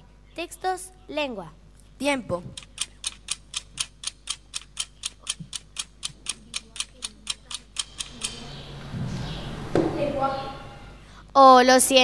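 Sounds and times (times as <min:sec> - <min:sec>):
clock ticking: 0:02.5 - 0:08.5.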